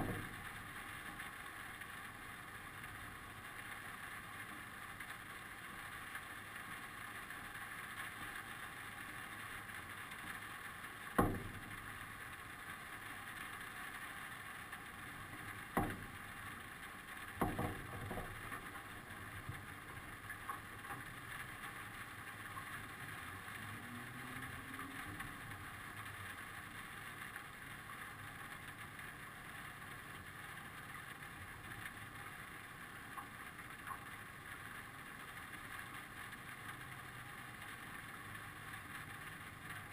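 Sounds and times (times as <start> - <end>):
sharp knocks: 0.0 - 0.4, 11.2 - 11.8, 15.8 - 16.2, 17.4 - 18.7
faint steady hiss: 0.0 - 39.9.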